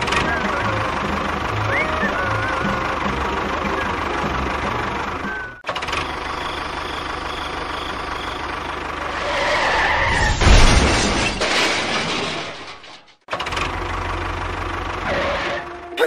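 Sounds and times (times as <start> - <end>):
heavy rumble and clatter: 0.0 - 15.9.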